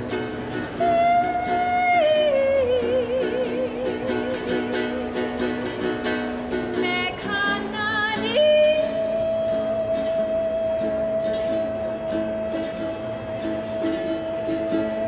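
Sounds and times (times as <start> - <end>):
strummed ukulele: 0.0 - 15.0
woman singing: 0.9 - 5.0, 6.7 - 12.6.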